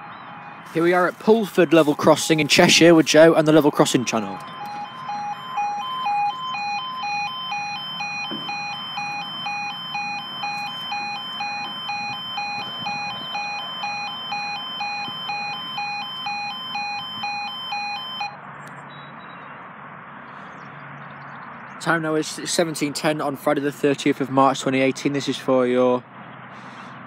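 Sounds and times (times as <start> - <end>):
level crossing two-tone alarm: 0.0 - 18.4.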